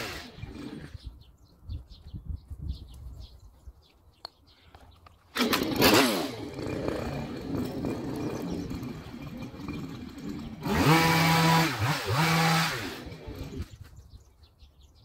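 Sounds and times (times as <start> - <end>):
hedge trimmer engine revving: 0.0 - 1.0, 5.3 - 13.7.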